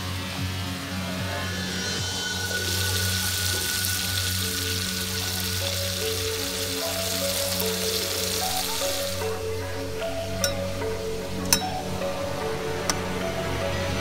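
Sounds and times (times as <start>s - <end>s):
background music: 0.0s - 14.0s
water boiling in a pot: 1.2s - 9.8s.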